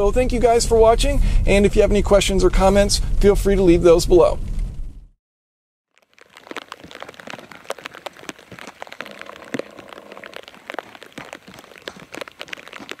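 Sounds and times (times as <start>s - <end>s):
footsteps on gravel: 5.9s - 13.0s.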